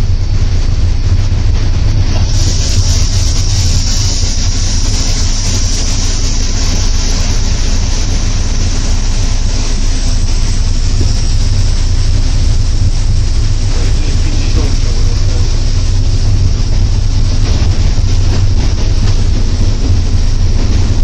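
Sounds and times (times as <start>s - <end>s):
locomotive cab low rumble: 0.0s - 21.0s
steady hiss: 0.0s - 21.0s.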